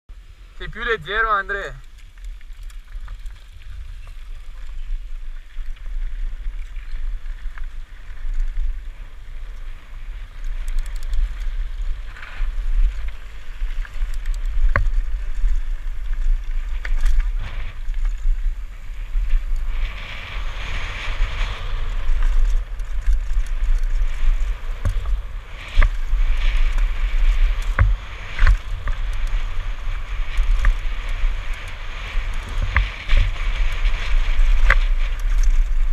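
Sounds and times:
wind buffeting microphone: 0.4 - 35.9
bike knocks and rattles: 10.4 - 18.4, 20.6 - 35.9.

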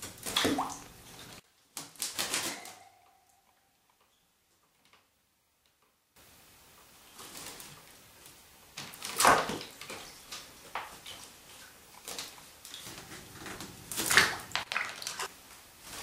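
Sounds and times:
parrot splashing in water: 8.9 - 15.3.

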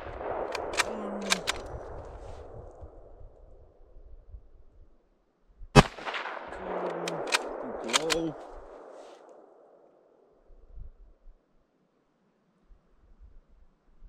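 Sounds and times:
rifle shot with echo: 0.0 - 3.2, 5.8 - 10.2
rifle bolt clicks: 0.4 - 1.7, 6.8 - 8.2.

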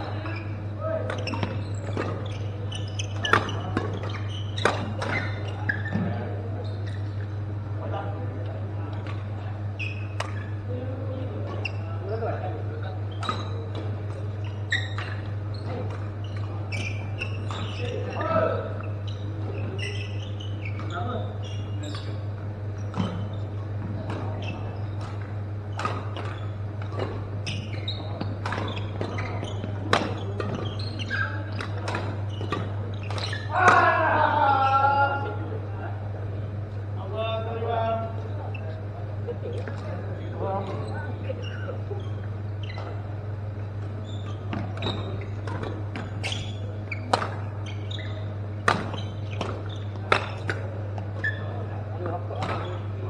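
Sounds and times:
shoes squeaking on court floor: 0.0 - 53.0
steady low hum: 0.0 - 53.0
rackets striking shuttlecocks: 1.0 - 6.1, 18.8 - 34.0, 43.5 - 51.2.

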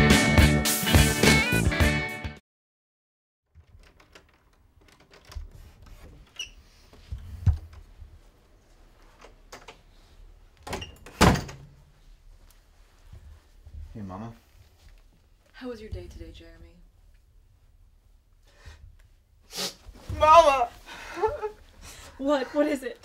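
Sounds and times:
door knob and latch clicks: 3.6 - 5.6
door thuds: 10.7 - 11.7.

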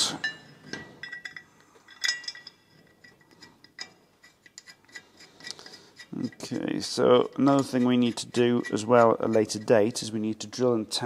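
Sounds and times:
light metallic clinks: 0.0 - 6.5.

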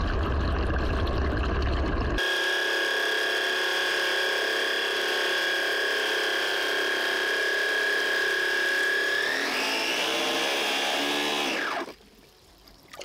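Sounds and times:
electric pump motor whining: 2.2 - 12.0.

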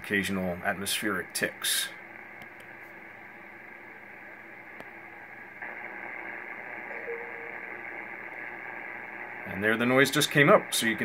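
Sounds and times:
radio band noise hiss: 0.1 - 2.9, 4.9 - 11.0
power-line noise: 5.6 - 10.9.

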